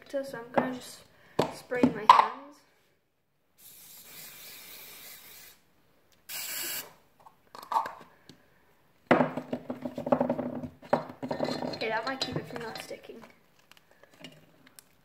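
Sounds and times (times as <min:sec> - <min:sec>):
aerosol spray hissing: 0:03.6 - 0:05.6, 0:06.3 - 0:06.9
sticky hands rubbing together: 0:03.6 - 0:05.7.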